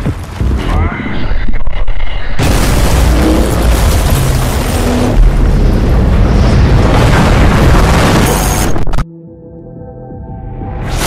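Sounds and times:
explosion booming and rumbling: 0:00.0 - 0:09.0
music: 0:09.1 - 0:11.0.

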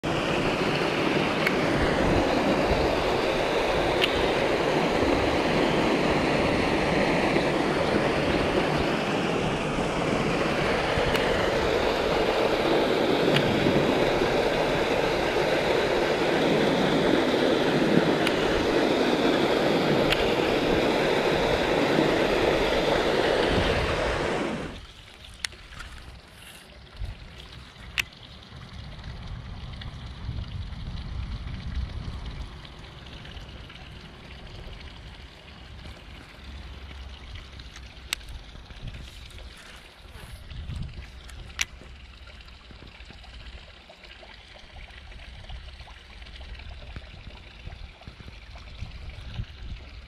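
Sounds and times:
water rushing over weir: 0:00.0 - 0:50.0.

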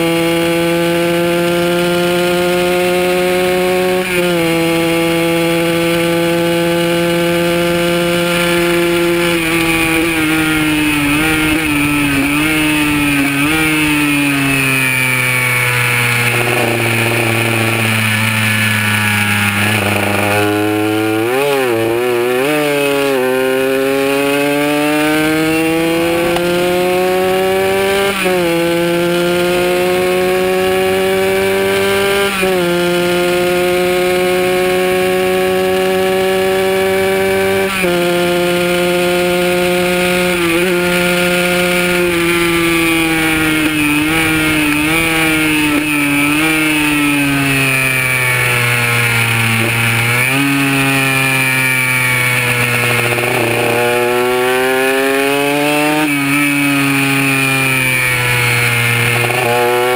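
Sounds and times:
two-stroke motorcycle engine revving: 0:00.0 - 0:59.9
wind rush: 0:07.8 - 0:16.8.

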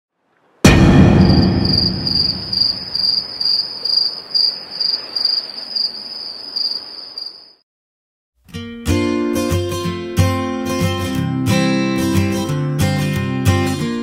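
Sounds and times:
low rumble of deep impact: 0:00.6 - 0:03.4
cricket chirping: 0:00.7 - 0:07.6
acoustic guitar music: 0:08.5 - 0:14.0.

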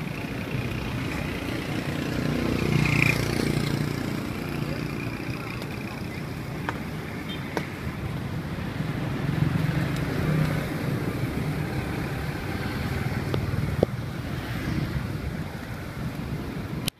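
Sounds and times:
street traffic rumble: 0:00.0 - 0:16.9
vehicle engines running: 0:00.0 - 0:16.9.

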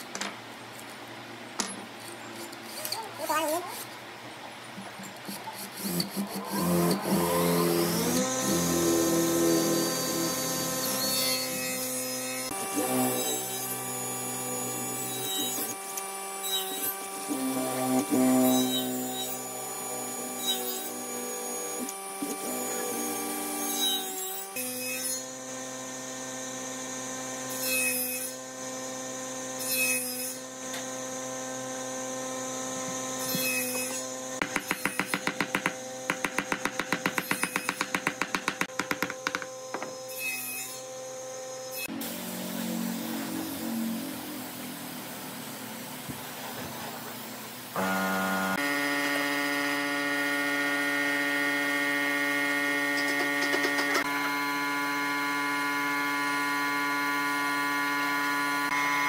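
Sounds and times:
electric drill boring into wood: 0:05.8 - 0:42.2, 0:47.7 - 0:59.0
hammer tapping wood: 0:34.4 - 0:40.0.

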